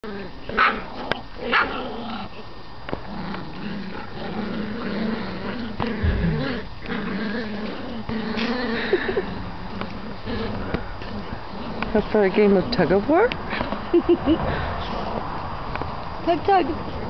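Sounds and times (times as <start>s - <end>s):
puppies play-growling: 0.0s - 17.0s
low thump: 6.0s - 6.4s.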